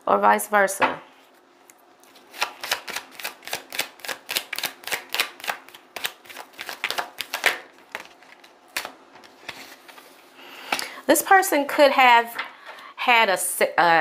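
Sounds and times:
tarot cards being shuffled: 2.0 - 10.2.

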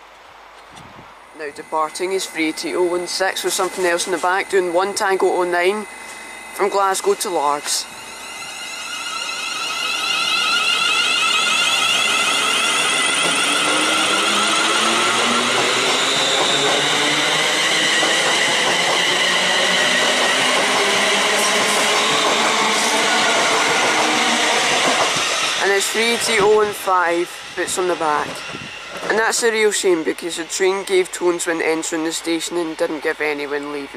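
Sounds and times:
electric traction whine: 1.1 - 32.8
wheels running on rails: 6.6 - 31.2.

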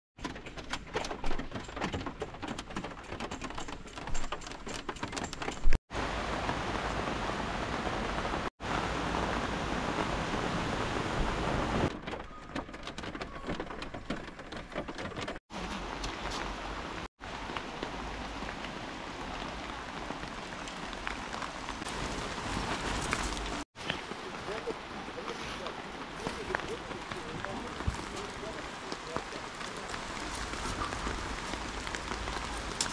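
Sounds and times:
heavy rain downpour: 5.9 - 11.9, 15.5 - 32.9.

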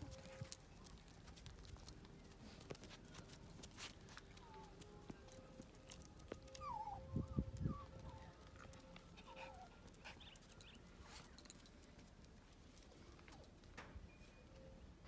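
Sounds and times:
puppies whimpering: 6.0 - 10.8.

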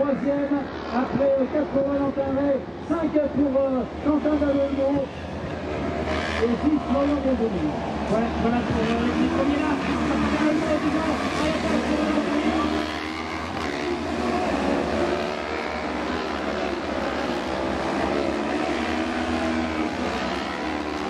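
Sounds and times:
buggy engines revving: 0.0 - 21.0.

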